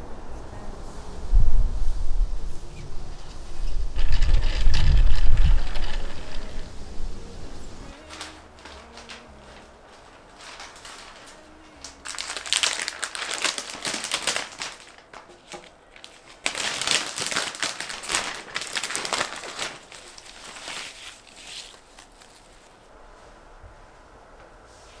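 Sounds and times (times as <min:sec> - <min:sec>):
cellophane wrap crinkling: 0:04.0 - 0:06.9, 0:07.9 - 0:22.9.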